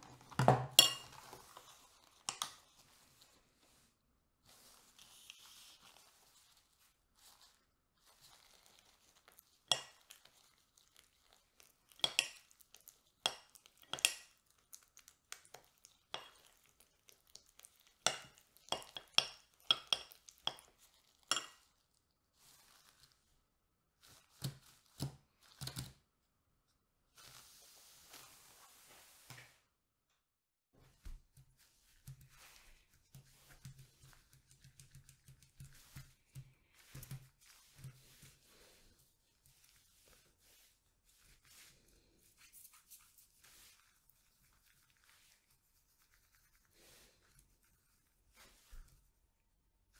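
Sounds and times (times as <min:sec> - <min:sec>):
spoon scraping glass bowl: 0:00.8 - 0:02.6, 0:18.0 - 0:21.7.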